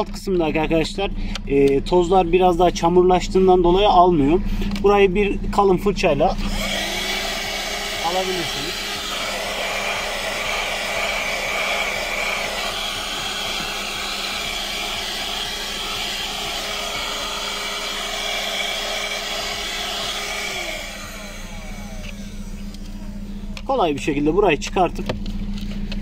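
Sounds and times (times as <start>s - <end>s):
hand vacuum running on carpet: 6.4s - 23.7s.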